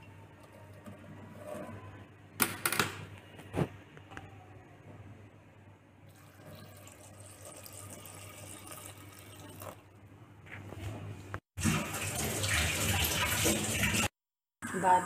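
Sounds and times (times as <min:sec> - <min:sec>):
water trickling into a pot: 0:06.1 - 0:09.9.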